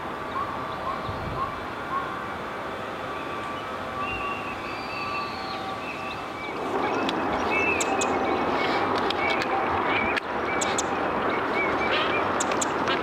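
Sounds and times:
steady background hiss: 0.0s - 13.0s
small birds chirping: 0.2s - 13.0s
high ticking bird notes: 3.2s - 12.9s.

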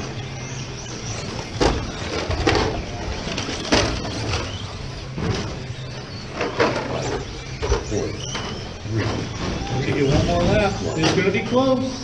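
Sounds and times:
electric rc cars humming: 0.0s - 12.0s
rc cars clattering knocks: 1.4s - 5.6s.

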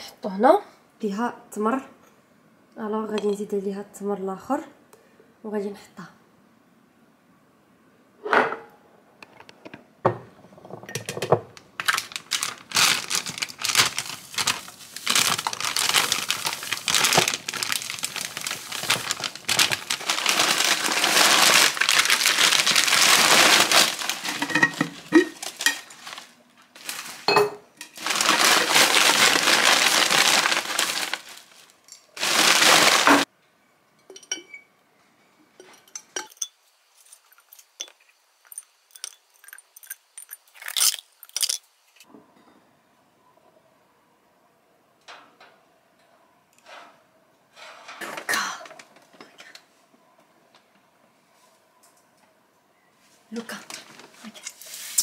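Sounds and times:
plastic bags crinkling: 11.6s - 33.3s, 38.5s - 41.6s.

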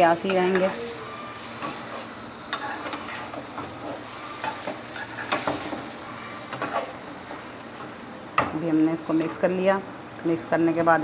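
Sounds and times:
vegetables sizzling in a pot: 0.0s - 11.0s.

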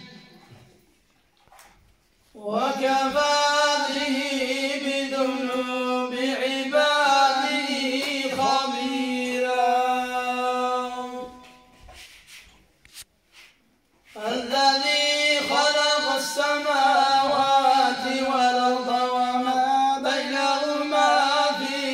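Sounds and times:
man chanting: 2.4s - 11.7s, 14.2s - 21.9s.

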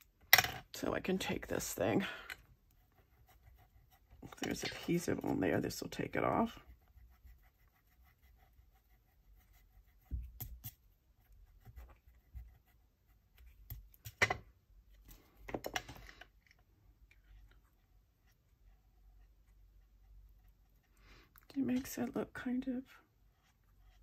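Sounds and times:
scratchy rubbing on paper: 2.7s - 13.8s.

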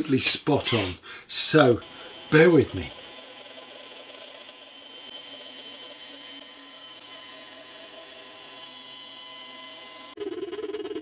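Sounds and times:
bandsaw cutting plywood: 1.6s - 10.2s.

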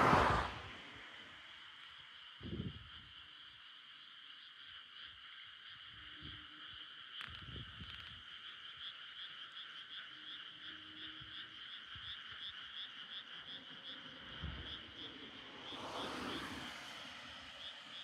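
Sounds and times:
rush of noise: 0.0s - 1.2s, 14.4s - 18.0s
frogs calling in pulsing trill: 1.1s - 18.0s.

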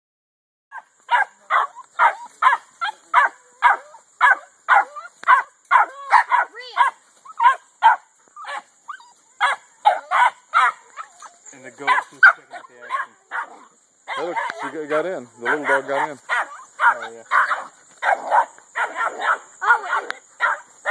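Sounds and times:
dog barking: 0.7s - 20.9s
dog whining yelps: 3.2s - 11.4s.

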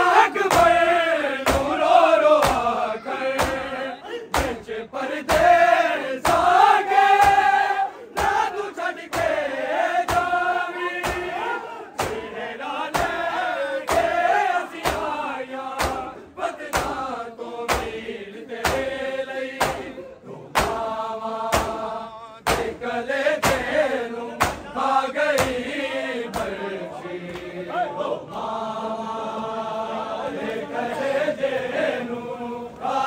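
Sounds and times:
men chanting together: 0.0s - 33.0s
hands beating on chests: 1.4s - 1.8s, 2.4s - 2.7s, 3.4s - 3.7s, 4.3s - 4.6s, 10.0s - 11.4s, 12.0s - 12.3s, 12.9s - 14.2s, 14.8s - 15.2s, 15.8s - 16.1s, 16.7s - 17.0s, 17.7s - 18.0s, 19.6s - 19.9s, 20.6s - 20.8s, 21.5s - 21.8s, 22.4s - 22.8s, 23.4s - 23.8s, 24.4s - 24.7s.

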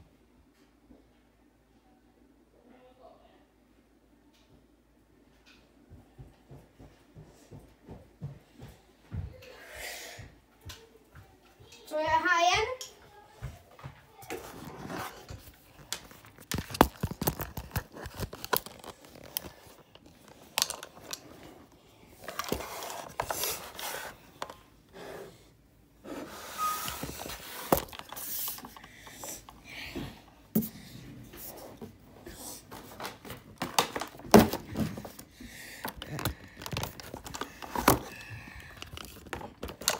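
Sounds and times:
phone being handled: 14.4s - 21.5s, 22.2s - 24.6s, 26.8s - 29.6s, 33.0s - 39.9s.

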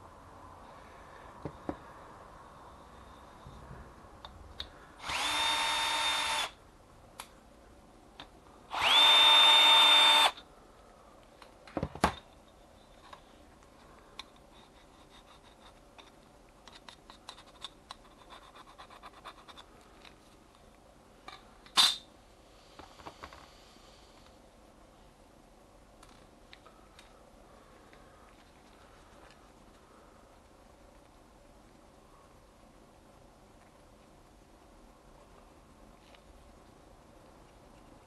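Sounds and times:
cordless drill whining: 5.0s - 6.6s, 8.7s - 10.4s.

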